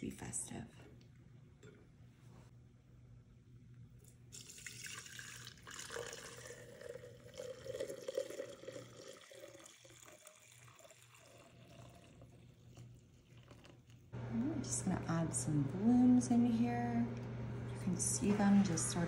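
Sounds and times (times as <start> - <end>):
liquid wax pouring into jar: 4.0 - 14.1.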